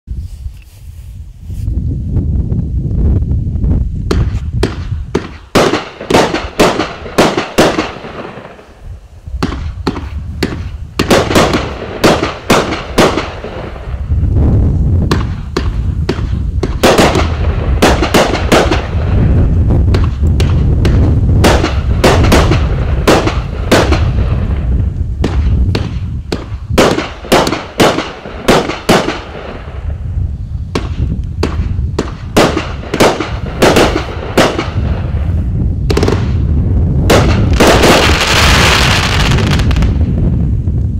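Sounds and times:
fireworks bursting: 0:04.0 - 0:40.6
low rumble: 0:08.0 - 0:28.5, 0:29.2 - 0:40.9.

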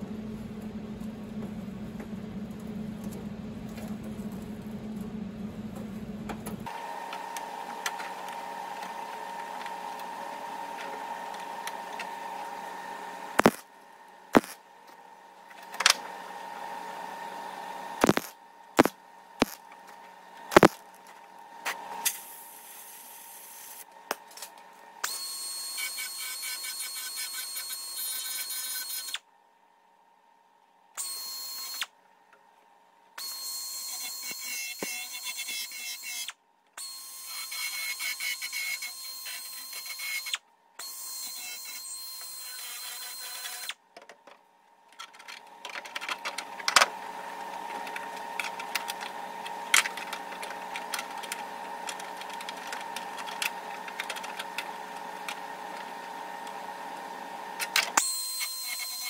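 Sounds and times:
power tool hum: 0:06.6 - 0:15.1, 0:15.8 - 0:24.2, 0:33.2 - 0:43.8, 0:46.2 - 0:59.0
high-pitched power tool: 0:13.4 - 0:13.6, 0:14.4 - 0:14.6, 0:18.0 - 0:19.6, 0:20.5 - 0:20.8, 0:25.0 - 0:29.2, 0:31.0 - 0:31.9, 0:33.2 - 0:43.8, 0:58.0 - 0:59.0.

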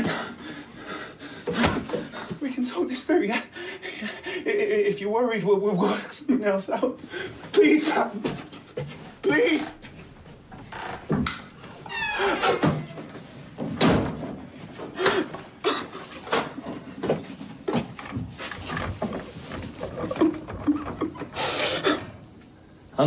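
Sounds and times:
gasping breaths: 0:21.2 - 0:22.2.

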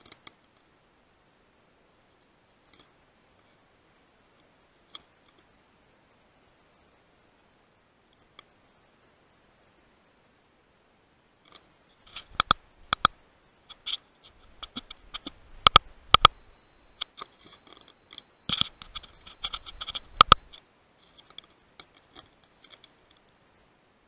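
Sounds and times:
light scratching and ticking: 0:02.2 - 0:03.6, 0:11.4 - 0:23.3
faint high tone: 0:16.2 - 0:20.5.

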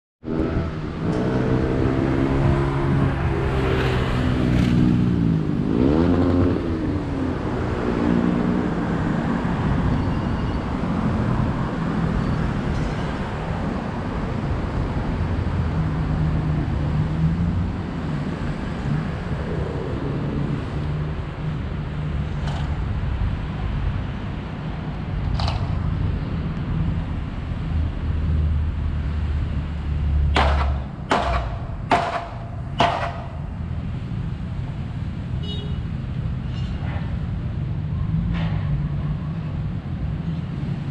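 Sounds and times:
vehicle engine revving: 0:00.2 - 0:09.3
traffic noise: 0:00.2 - 0:40.9.

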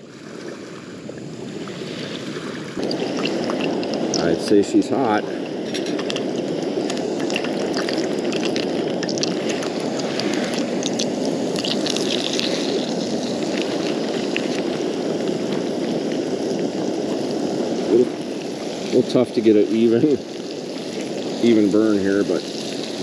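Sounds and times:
fish sizzling in hot oil: 0:00.0 - 0:23.0
small crackling pops: 0:02.8 - 0:04.3, 0:05.4 - 0:16.2.

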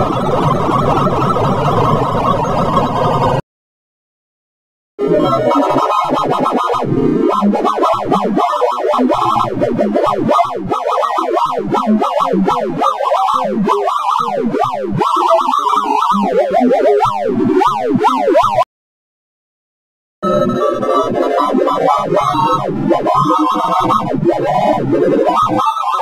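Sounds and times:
synthesized beeps zigzagging in pitch: 0:10.3 - 0:18.6.

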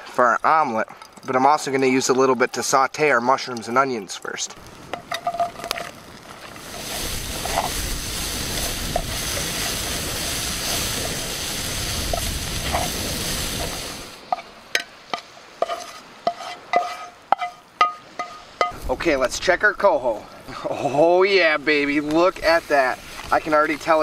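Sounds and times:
food sizzling in a skillet: 0:04.7 - 0:14.5, 0:15.1 - 0:18.9, 0:22.0 - 0:24.0
spatula scraping a pan: 0:15.1 - 0:18.8.

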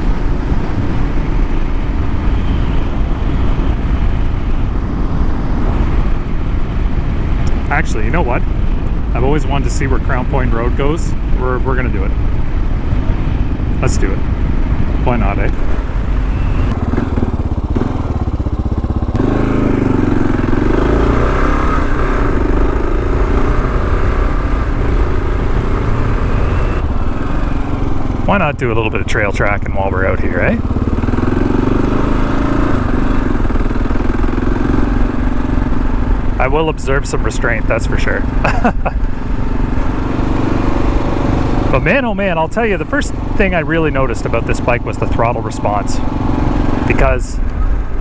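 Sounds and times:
wind rumble on microphone: 0:00.0 - 0:48.0
motorcycle engine running: 0:10.0 - 0:48.0.

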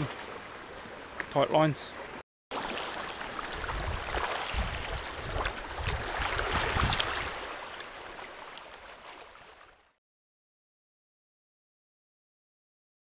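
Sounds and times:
fish splashing in water: 0:02.5 - 0:09.8
small water slaps: 0:02.5 - 0:09.9.

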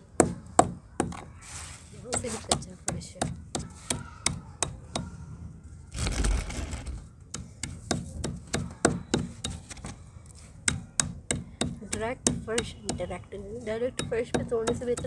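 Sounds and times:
gritty crunching scrape: 0:01.4 - 0:02.5
pounder knocking on clay: 0:10.6 - 0:15.0.

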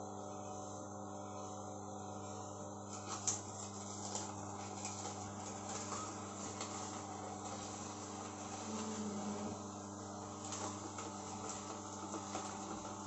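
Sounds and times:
juicer motor humming: 0:00.0 - 0:13.0
celery cracking and snapping: 0:02.9 - 0:06.8.

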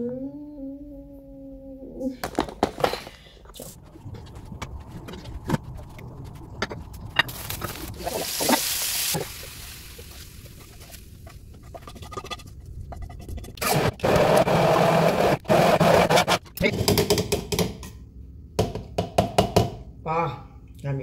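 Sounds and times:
utensils scraping in pot: 0:10.4 - 0:14.4.

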